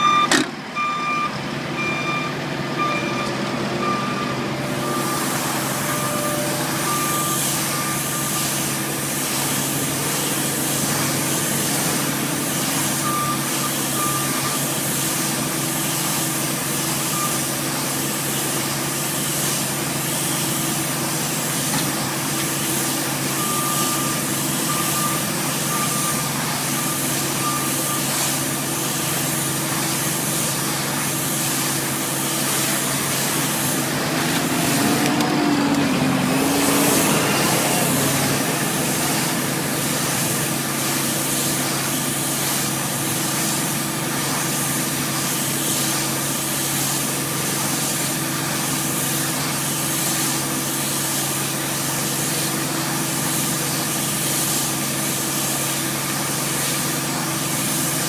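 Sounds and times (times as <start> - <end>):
tractor engine running: 0.0 - 7.2, 28.4 - 43.2.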